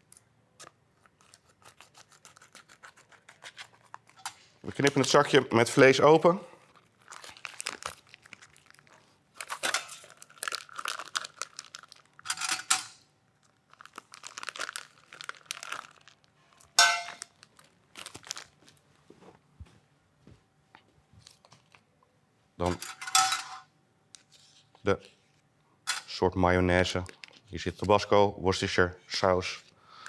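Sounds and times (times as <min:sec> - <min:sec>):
plastic bag crinkling: 0:06.6 - 0:12.3, 0:13.4 - 0:18.8.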